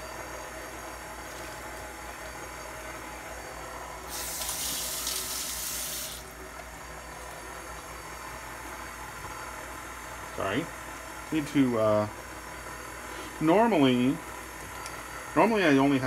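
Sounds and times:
stand mixer humming: 0:00.0 - 0:15.8
kitchen tap running: 0:04.1 - 0:06.3.

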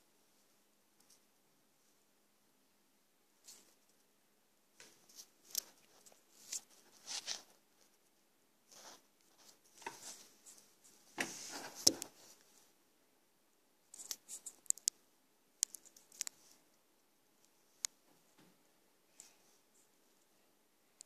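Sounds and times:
paper rustling: 0:04.8 - 0:08.0.

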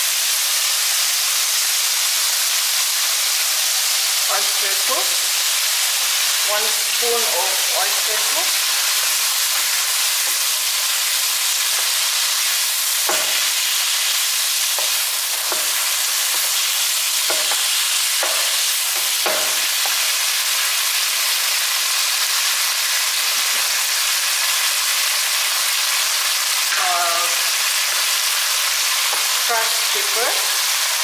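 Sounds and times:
food sizzling in a frying pan: 0:00.0 - 0:31.0
spatula scraping a pan: 0:11.6 - 0:20.2.

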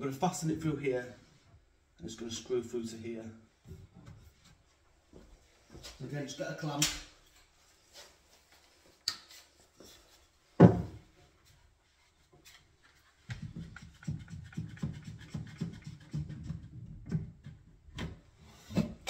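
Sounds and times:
knock on wooden cabinet: 0:10.6 - 0:11.0.

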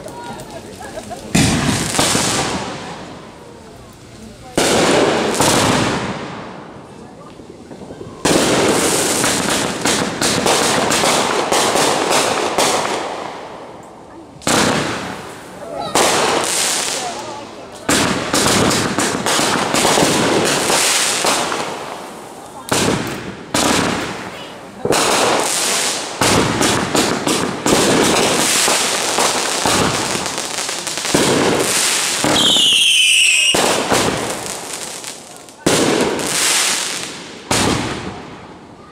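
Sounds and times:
fireworks bangs and pops: 0:00.0 - 0:38.9
shrill firework whistle: 0:32.2 - 0:33.6.

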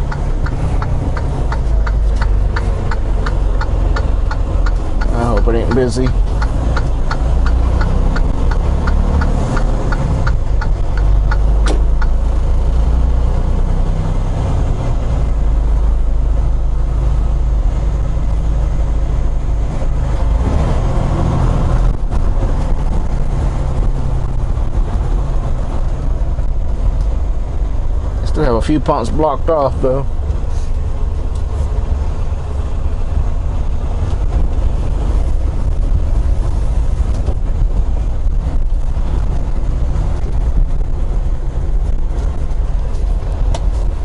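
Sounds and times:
quick ticking: 0:00.0 - 0:12.2
diesel engine rumbling: 0:00.0 - 0:44.0.

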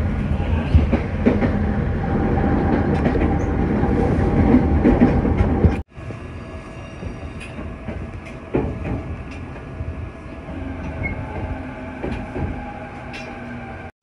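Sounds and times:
train low hum: 0:00.0 - 0:13.9
train low rumble: 0:00.0 - 0:13.9
knocks in train car: 0:07.5 - 0:09.2.

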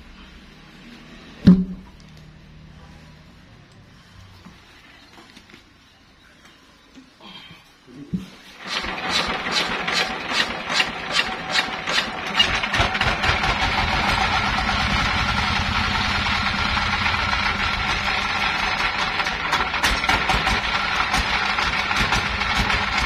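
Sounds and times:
stationary engine chuffing: 0:08.6 - 0:23.0.

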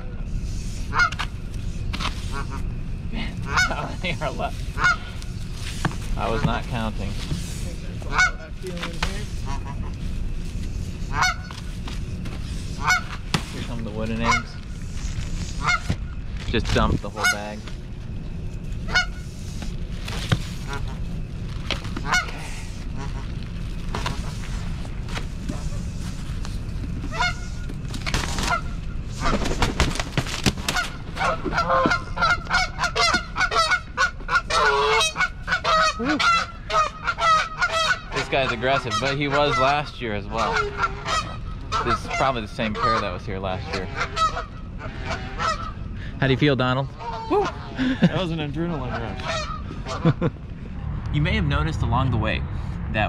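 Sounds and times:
goose honking: 0:00.9 - 0:01.3, 0:03.4 - 0:05.2, 0:08.0 - 0:08.6, 0:09.3 - 0:10.0, 0:11.0 - 0:11.6, 0:12.7 - 0:13.2, 0:13.9 - 0:14.6, 0:15.5 - 0:16.0, 0:17.1 - 0:17.6, 0:18.9 - 0:19.3, 0:22.0 - 0:23.2, 0:27.1 - 0:27.6, 0:30.7 - 0:45.9, 0:48.6 - 0:50.2.

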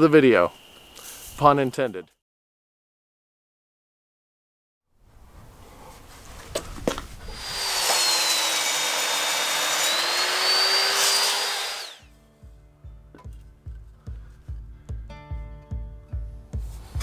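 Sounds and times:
miter saw cutting wood: 0:07.3 - 0:12.1.

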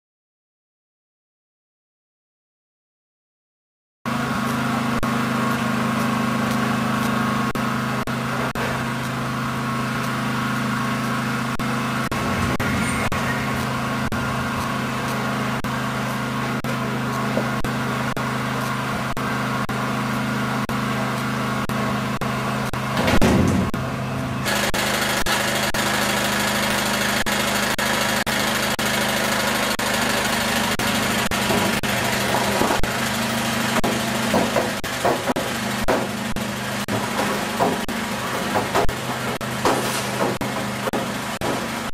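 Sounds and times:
crop chopper machine hum: 0:04.1 - 0:41.9
loud noisy burst: 0:11.3 - 0:16.7.

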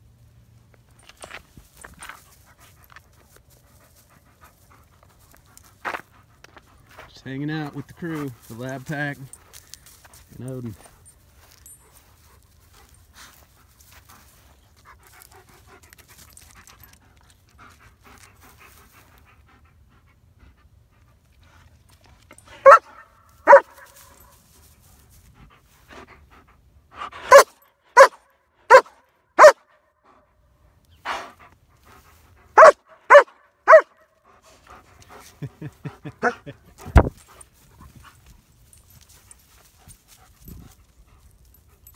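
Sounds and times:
dogs panting: 0:01.2 - 0:28.1, 0:31.0 - 0:41.9
dog barking loudly: 0:22.6 - 0:23.8, 0:27.2 - 0:29.7, 0:32.6 - 0:34.0.

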